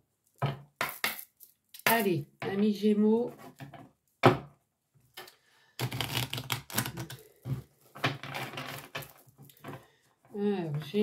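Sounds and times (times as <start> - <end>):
cards being shuffled: 5.8 - 7.3.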